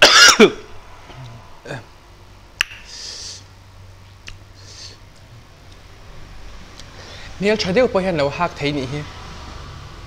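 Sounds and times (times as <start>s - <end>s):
breathy hiss: 2.8s - 3.6s, 4.6s - 5.1s.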